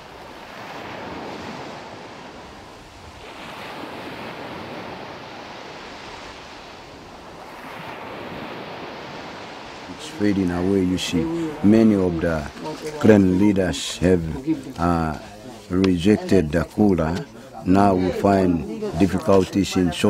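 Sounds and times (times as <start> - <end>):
surf washing on shore: 0.0 - 20.0.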